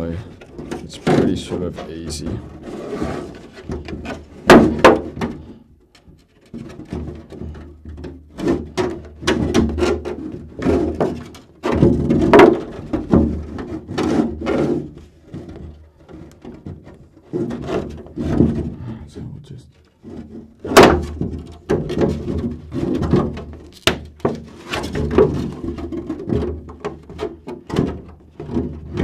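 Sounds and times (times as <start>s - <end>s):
plastic crinkling and cracking: 23.6s - 25.0s.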